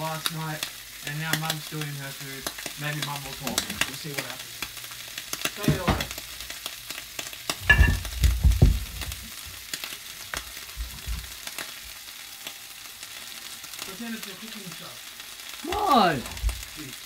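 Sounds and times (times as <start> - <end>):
pancakes sizzling in a frying pan: 0.0 - 17.0
knocks and clatter: 7.6 - 8.9.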